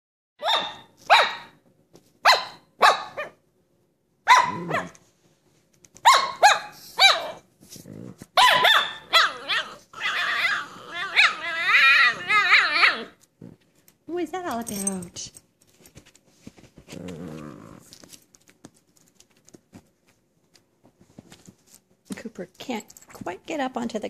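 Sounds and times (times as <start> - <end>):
puppy barking: 0.4 - 1.6, 2.2 - 3.4, 4.2 - 5.0, 6.0 - 7.4, 8.4 - 13.2
puppy growling: 4.4 - 5.0, 7.3 - 13.7, 16.8 - 18.1
puppy whining: 8.4 - 13.6.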